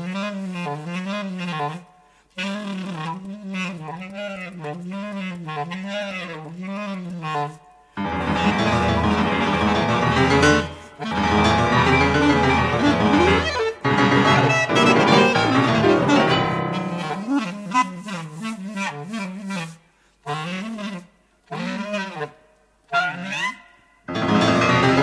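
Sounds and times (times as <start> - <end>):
clarinet bending pitch: 0.0 - 25.0
piano: 8.0 - 18.5, 24.1 - 25.0.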